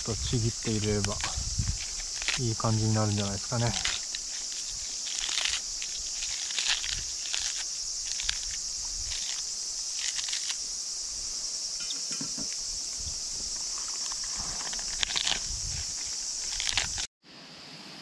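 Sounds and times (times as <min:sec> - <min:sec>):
insect chorus: 0:00.0 - 0:18.0
cabbage leaves tearing: 0:00.2 - 0:10.7, 0:13.6 - 0:17.1.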